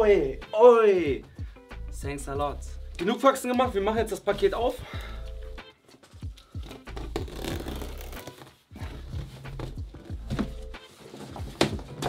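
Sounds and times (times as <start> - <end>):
cardboard rustling and knocking: 6.7 - 12.0.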